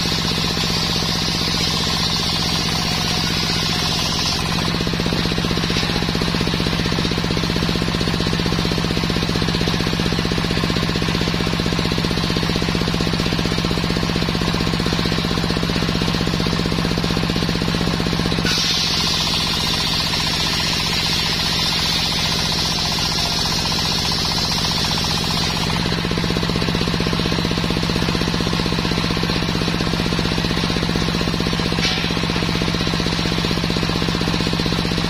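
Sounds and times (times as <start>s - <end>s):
circular saw cutting wood: 0.0s - 7.5s, 18.4s - 26.0s
engine running with rapid pulsing: 0.0s - 35.0s.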